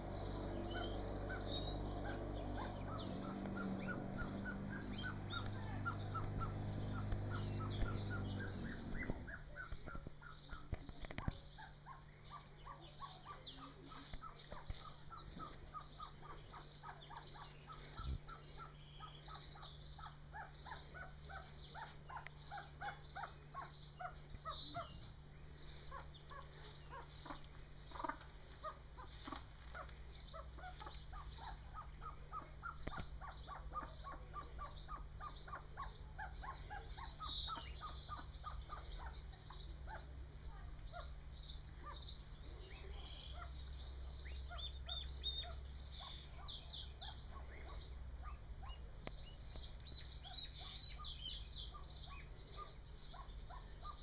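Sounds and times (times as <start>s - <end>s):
chicks peeping: 0.0s - 54.0s
low engine-like hum: 0.0s - 54.0s.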